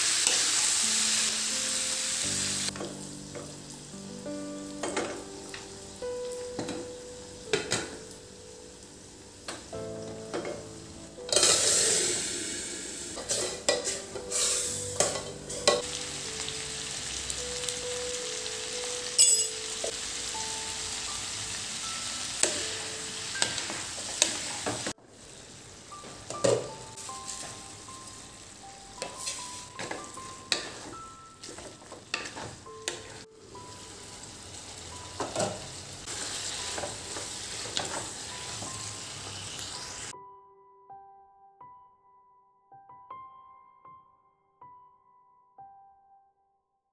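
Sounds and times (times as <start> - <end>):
hot oil sizzling: 0.0 - 40.1
spatula clinking against pan: 19.2 - 19.8.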